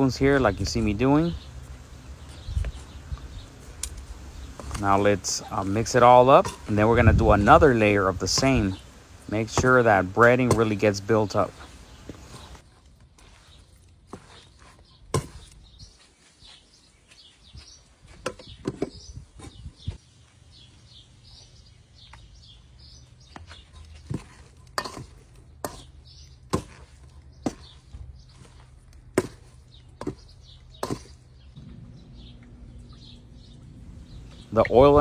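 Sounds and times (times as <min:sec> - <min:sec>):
birds chirping: 0:00.0 - 0:35.0.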